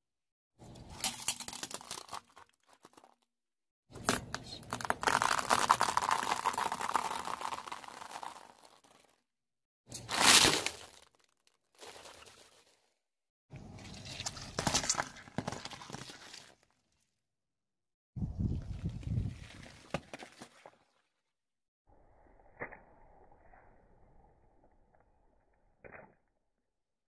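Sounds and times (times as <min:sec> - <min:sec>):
dry pasta crunching: 0:00.9 - 0:03.3, 0:04.0 - 0:09.2.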